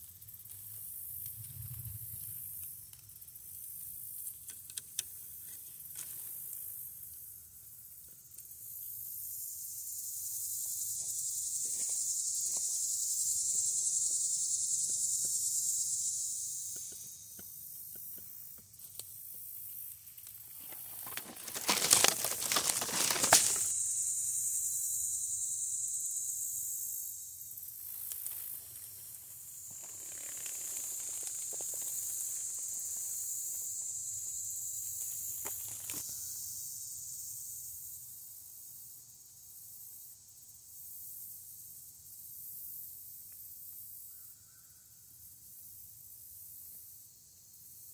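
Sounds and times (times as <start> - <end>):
high-pitched hiss: 0.0 - 21.1, 23.1 - 44.9
dry leaves rustling and crackling: 20.6 - 23.7, 29.7 - 32.4.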